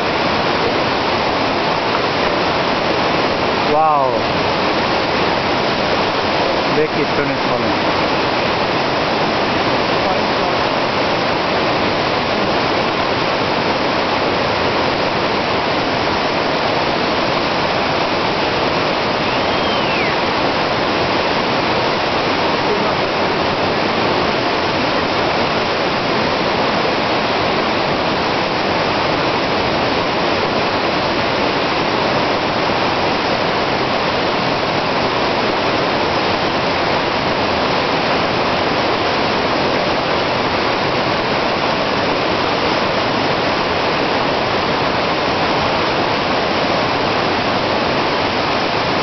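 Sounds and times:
river rushing over rocks: 0.0s - 49.0s.

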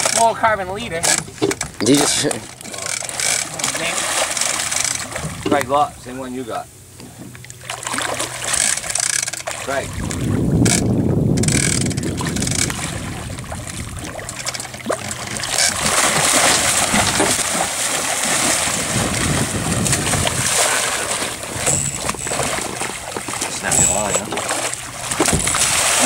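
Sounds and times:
water splashing and churning: 0.0s - 26.0s
shark thrashing in water: 7.6s - 26.0s.

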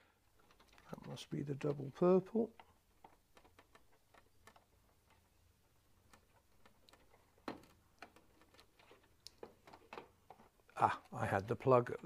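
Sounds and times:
plastic plugs clicking and rustling: 0.0s - 12.0s.

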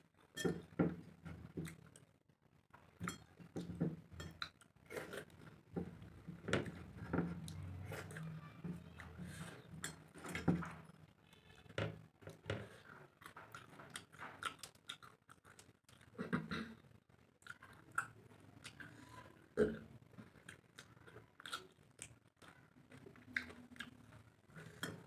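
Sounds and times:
person chewing with wet smacks: 1.4s - 2.0s, 13.2s - 16.2s, 17.4s - 19.0s, 20.2s - 25.0s.

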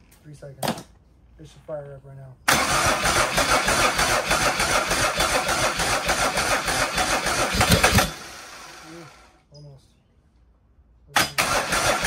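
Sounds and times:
diesel engine cranking: 2.5s - 9.3s, 11.2s - 12.0s.

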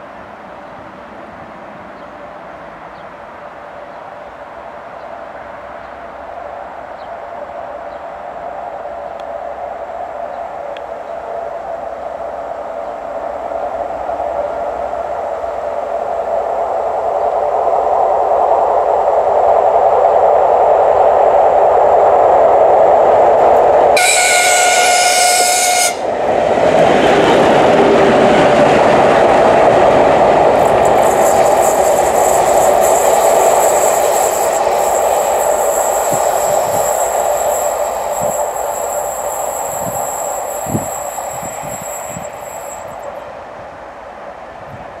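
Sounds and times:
thin high squeal: 24.0s - 26.0s, 30.6s - 43.1s
locomotive horn: 24.0s - 26.2s.

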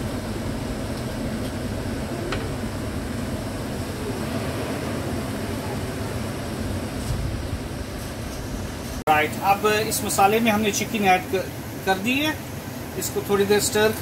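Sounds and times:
gas hob rumble: 0.0s - 14.0s.

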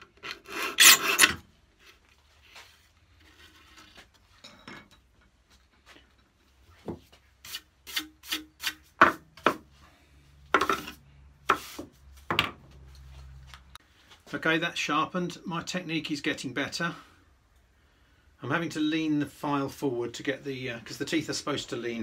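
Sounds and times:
file scraping saw teeth: 0.2s - 1.4s.

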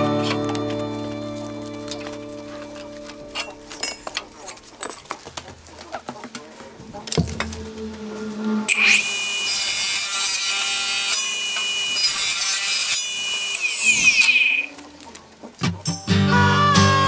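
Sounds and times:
power tool motor whining: 8.3s - 14.8s.

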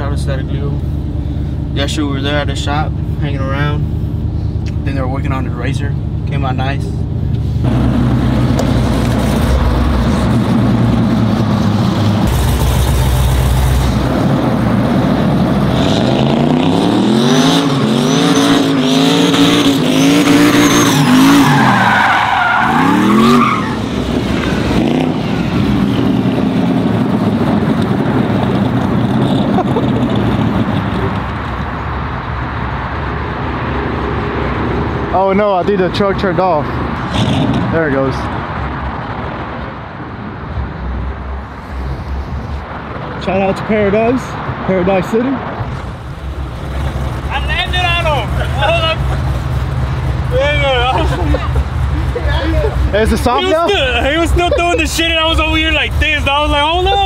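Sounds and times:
truck engine revving: 7.6s - 31.4s
tires squealing on pavement: 15.7s - 27.6s.

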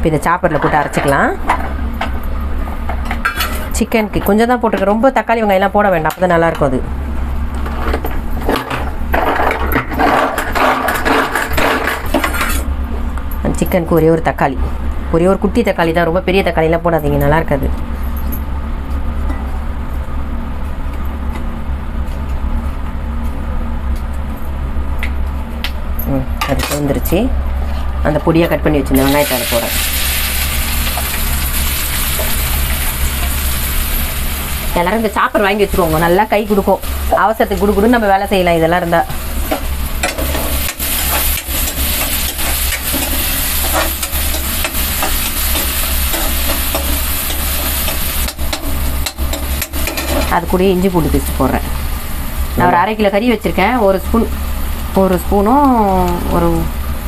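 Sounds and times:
steady low hum: 0.0s - 57.0s
onion sizzling in oil: 28.9s - 57.0s.

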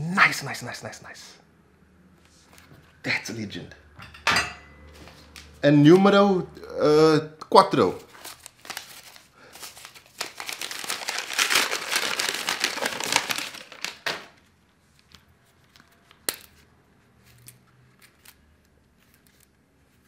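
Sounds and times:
paper tearing and crumpling: 7.9s - 14.3s.

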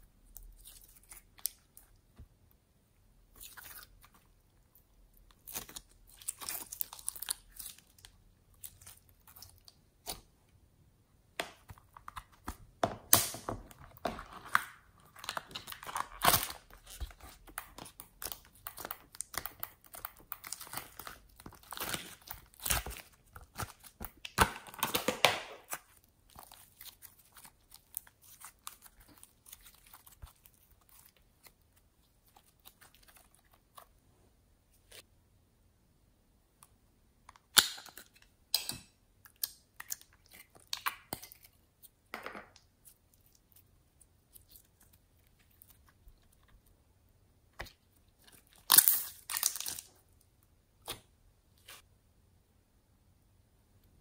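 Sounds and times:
slime squished and stretched: 11.5s - 33.9s, 47.5s - 50.0s.

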